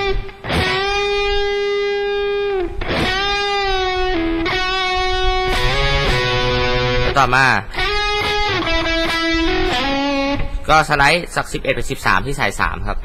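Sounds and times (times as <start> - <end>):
electric guitar solo with bends: 0.0 - 10.7.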